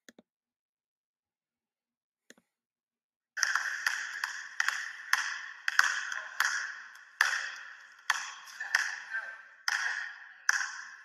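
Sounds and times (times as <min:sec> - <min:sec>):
basketballs bouncing on wooden floor: 0:03.4 - 0:11.0.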